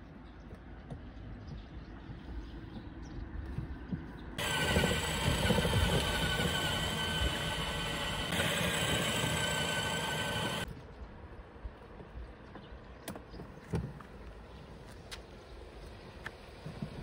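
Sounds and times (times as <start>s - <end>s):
electric toy car motors whining: 4.4s - 10.7s
low outdoor rumble: 4.4s - 11.9s.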